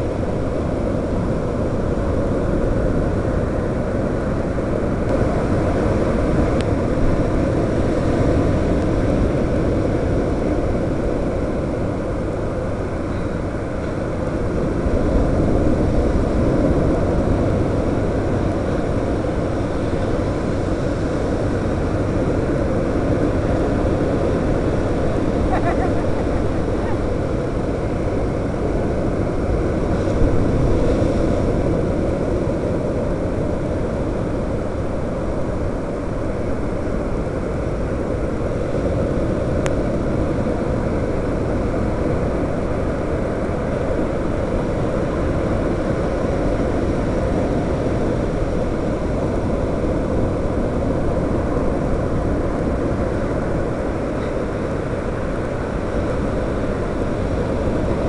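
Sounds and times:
quadcopter motors droning: 21.3s - 28.6s.

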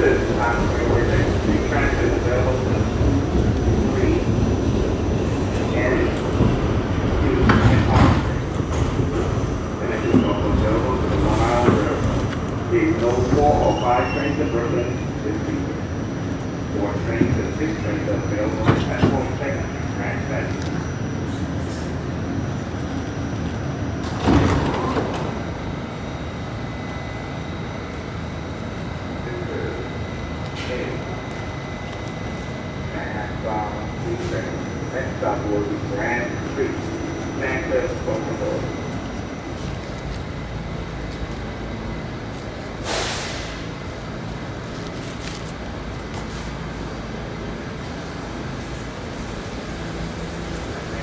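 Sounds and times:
subway train rumble: 0.0s - 51.0s
sliding doors opening: 24.0s - 25.6s
air hiss from train: 42.7s - 43.8s.

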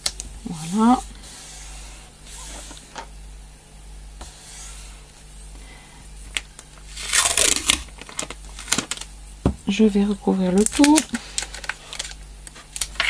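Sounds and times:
paper tape handled: 6.3s - 9.1s, 10.6s - 13.0s
loud paper rustle: 10.6s - 13.0s.

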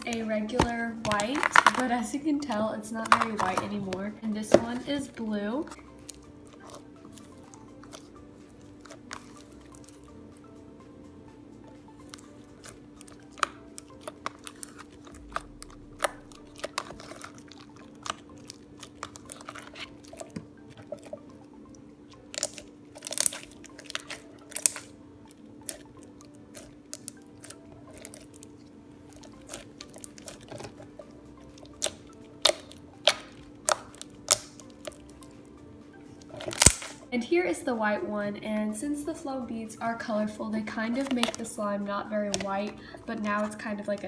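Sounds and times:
slime crackling and popping: 0.0s - 3.8s, 12.0s - 21.2s, 22.2s - 25.0s, 25.6s - 35.3s, 36.2s - 37.0s, 40.9s - 41.5s
slime squishing: 0.0s - 10.1s, 12.0s - 21.4s, 22.2s - 35.3s, 36.1s - 37.0s, 40.7s - 41.5s, 42.2s - 44.0s.

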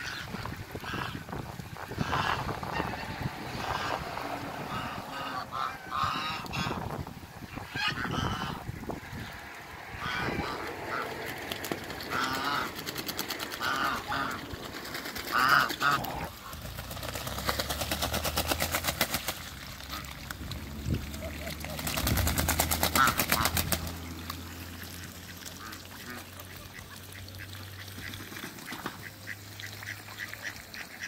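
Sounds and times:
ducks quacking: 0.0s - 16.8s, 19.8s - 31.0s.

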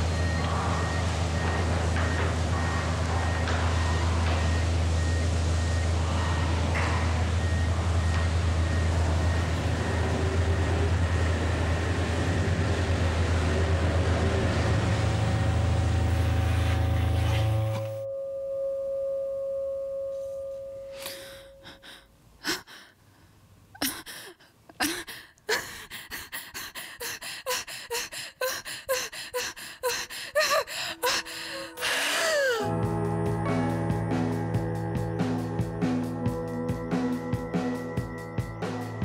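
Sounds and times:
low rumbling drone: 0.0s - 22.0s, 30.7s - 39.0s
held tone: 16.0s - 22.0s.

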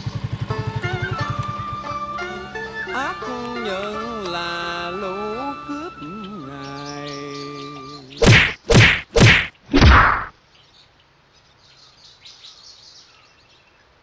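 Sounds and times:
background music: 0.5s - 8.2s
faint bird chirps: 5.3s - 8.4s, 10.4s - 14.0s
heavy thwacks of a beating: 8.2s - 10.3s.

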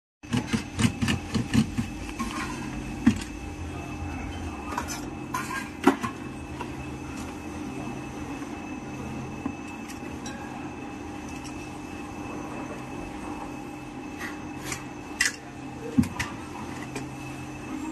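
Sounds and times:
steady low hum: 0.2s - 17.9s.

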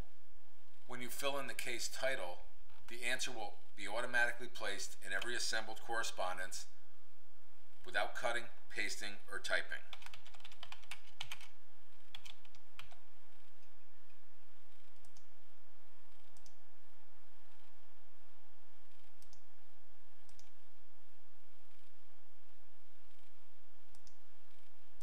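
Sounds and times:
computer keyboard typing: 9.9s - 13.7s, 14.7s - 15.3s, 20.3s - 20.6s
mouse clicks: 14.7s - 15.3s, 16.1s - 16.6s, 18.9s - 19.4s, 20.2s - 20.6s, 23.9s - 24.7s.

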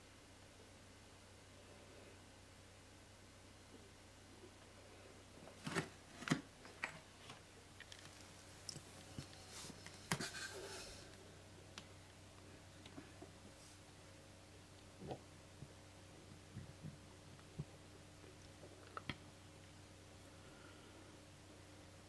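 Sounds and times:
soft rustle: 7.2s - 11.2s, 12.9s - 14.0s.

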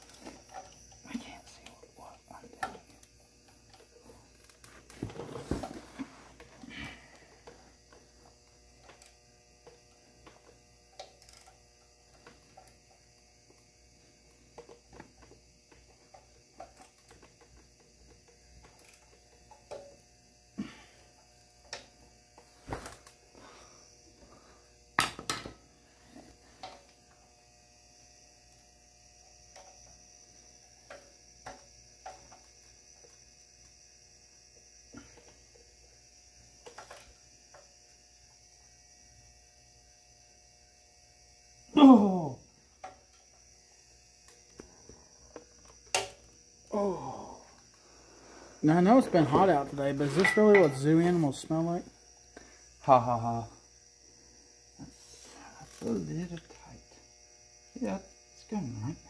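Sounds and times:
hand tools clinking on metal: 50.1s - 51.0s.

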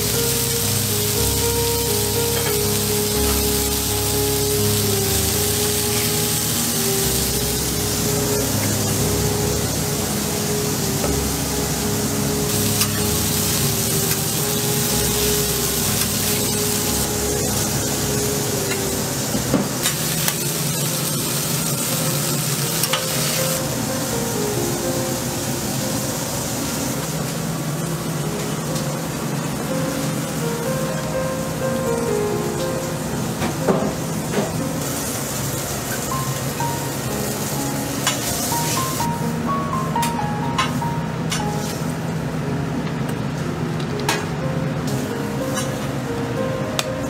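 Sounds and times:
background music: 0.0s - 27.0s, 28.2s - 47.0s
patties sizzling on griddle: 0.0s - 27.8s, 33.9s - 39.0s.

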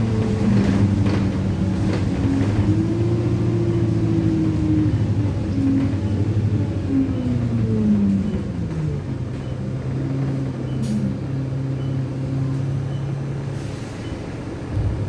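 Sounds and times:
bus diesel engine running: 0.0s - 15.0s.

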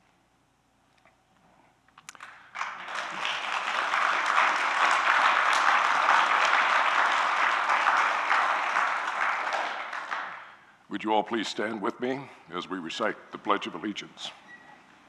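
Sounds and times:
congregation applauding: 2.1s - 10.7s.

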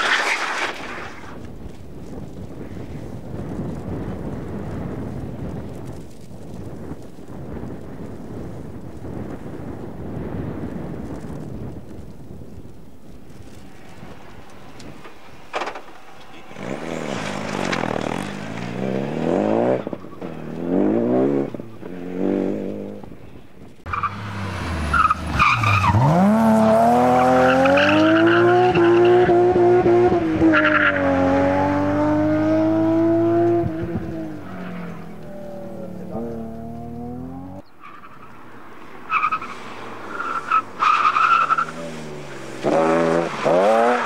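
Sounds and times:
rally car engine revving: 13.4s - 23.2s, 23.9s - 38.4s, 39.1s - 44.0s.

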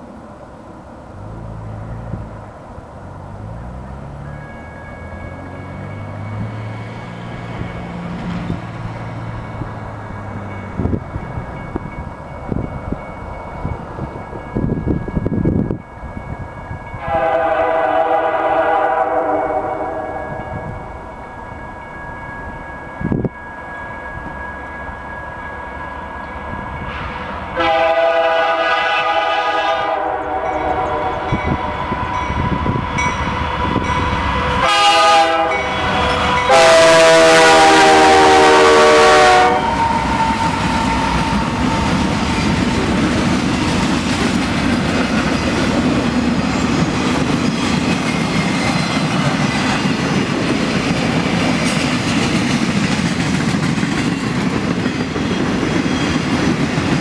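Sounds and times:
locomotive rumble: 0.0s - 57.0s
train wheels on rails: 0.0s - 57.0s
locomotive air horn blasts: 17.0s - 20.8s, 26.9s - 42.0s.

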